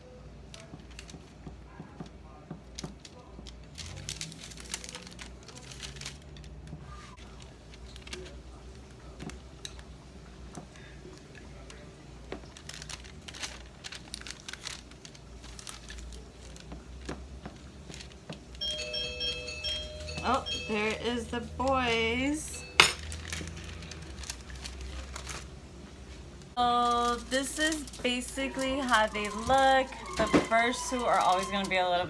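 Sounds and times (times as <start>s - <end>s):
bright ringing tone: 18.6s - 21.7s, 22.5s - 23.1s.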